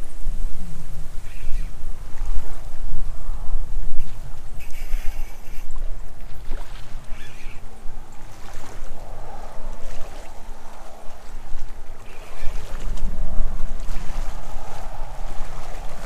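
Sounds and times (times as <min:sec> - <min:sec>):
wind buffeting microphone: 0:00.0 - 0:16.0
river water rushing: 0:03.9 - 0:16.0.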